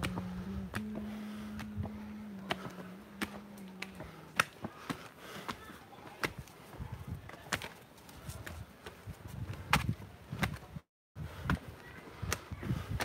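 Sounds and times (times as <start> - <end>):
low buzz: 0.0 - 4.4
footsteps on rock: 0.0 - 10.7.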